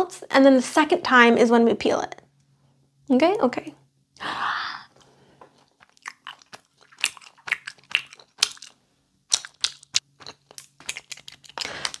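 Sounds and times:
person chewing gummy candy: 5.5 - 12.0.

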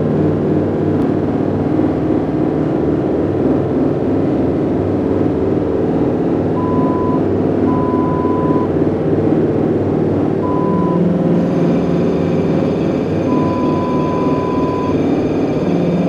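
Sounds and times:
grainy low electronic rumble: 0.0 - 16.0
steady low drone tones: 0.0 - 16.0
thin high tones: 10.4 - 16.0.

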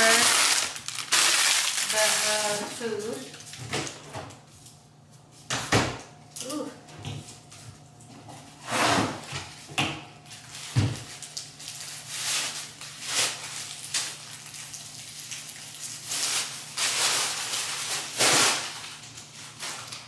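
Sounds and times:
plastic bags rustling: 0.0 - 4.1, 10.2 - 20.0.

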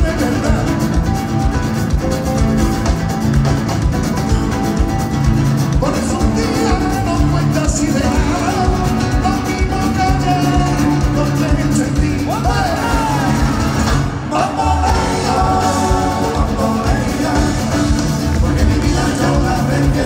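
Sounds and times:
man singing: 0.0 - 1.5, 5.7 - 20.0
congas: 0.0 - 20.0.

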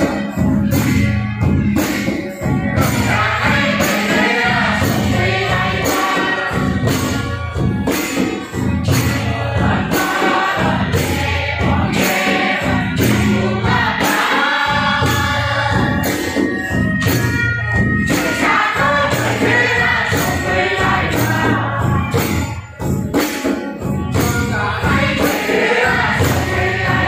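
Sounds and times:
jingling percussion: 0.0 - 27.0
drum beat: 1.6 - 27.0
voices singing together: 2.6 - 22.9, 24.1 - 27.0.

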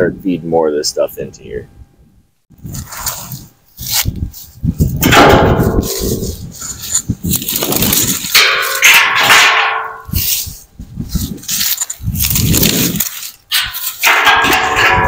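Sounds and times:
branches scraping metal barrel: 2.6 - 4.1, 4.7 - 15.0
metal ringing: 5.0 - 6.4, 7.8 - 10.2, 12.9 - 15.0.

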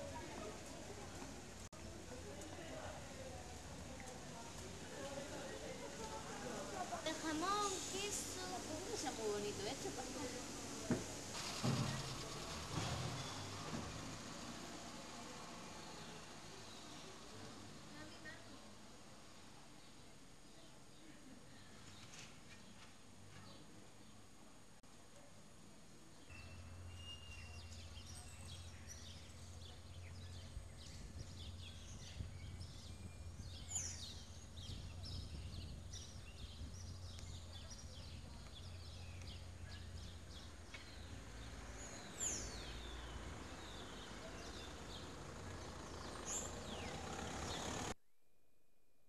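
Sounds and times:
small birds chirping: 26.1 - 47.9.

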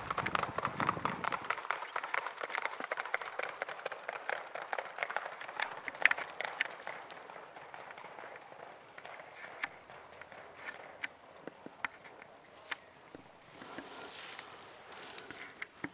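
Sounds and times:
horse hoofbeats on road: 0.0 - 12.4.

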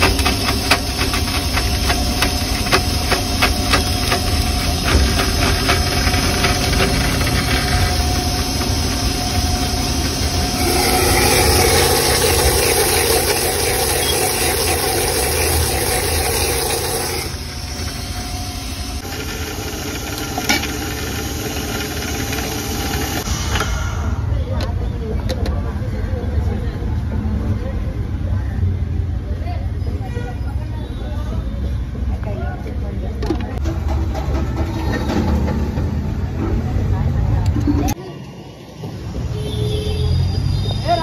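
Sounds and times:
mixer grinder motor whirring: 0.0 - 23.8.

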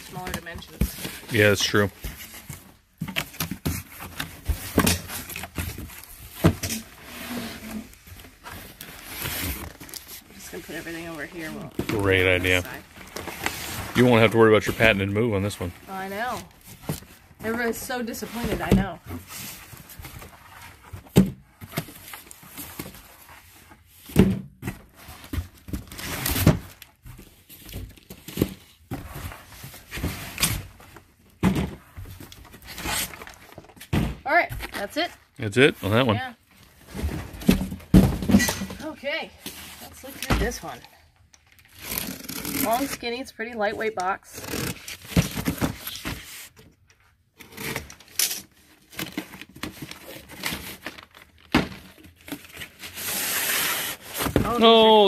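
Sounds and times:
cardboard box rustling: 0.0 - 21.1
items thunking down: 36.8 - 40.8.

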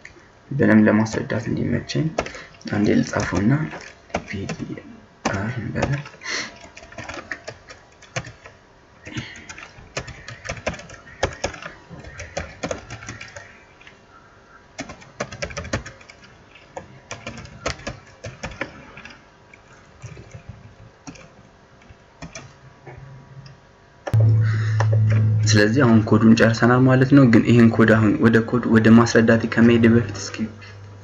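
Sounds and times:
computer keyboard typing: 1.0 - 1.4, 2.2 - 13.9, 14.8 - 19.2, 20.0 - 21.4, 22.2 - 22.6.

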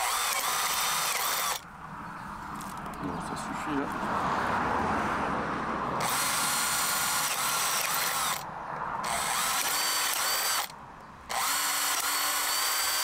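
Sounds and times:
cordless drill whine: 0.0 - 1.6, 6.0 - 13.0.

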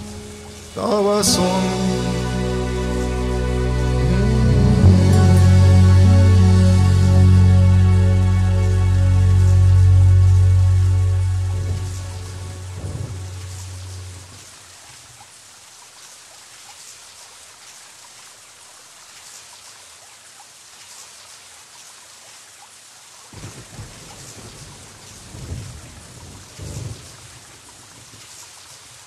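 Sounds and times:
steady rain: 0.0 - 29.0
low rumbles of thunder: 11.4 - 14.4, 23.4 - 28.2.

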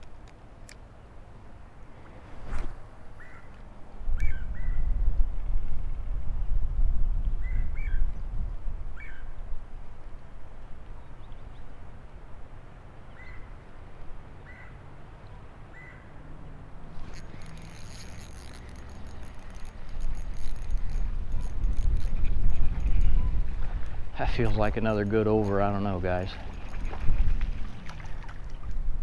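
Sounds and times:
fishing reel clicking and rattling: 17.0 - 27.0.

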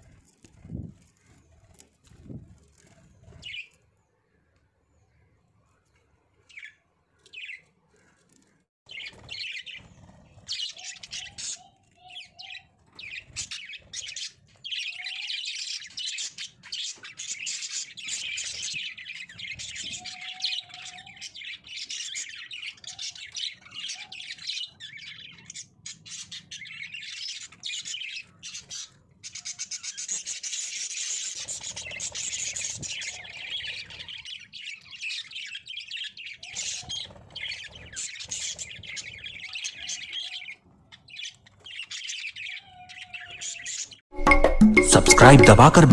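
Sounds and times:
budgerigars chattering and chirping: 8.9 - 44.0.

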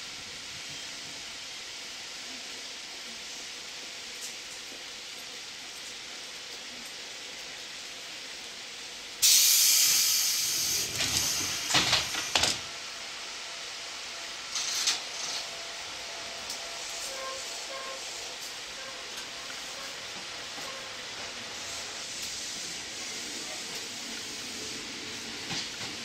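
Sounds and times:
compressed air hissing: 9.2 - 12.5.

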